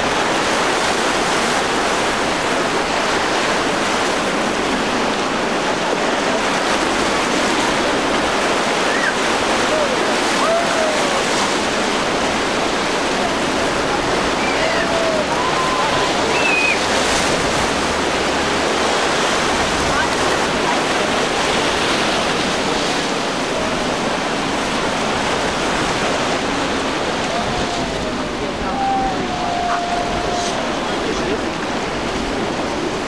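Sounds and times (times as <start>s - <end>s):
boat wake churning: 0.0s - 33.0s
waves breaking: 0.0s - 33.0s
faint voices: 8.6s - 17.5s, 26.1s - 32.9s.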